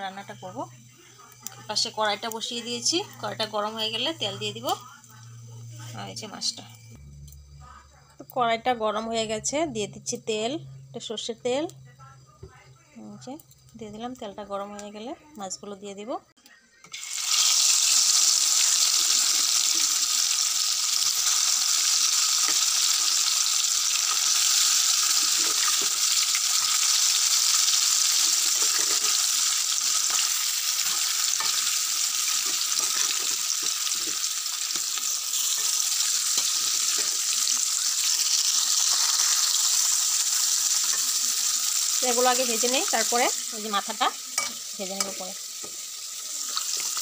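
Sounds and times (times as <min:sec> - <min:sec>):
fish sizzling in hot oil: 0:00.0 - 0:07.0, 0:16.9 - 0:47.0
metal spatula scraping and tapping: 0:28.5 - 0:29.2, 0:32.4 - 0:35.7.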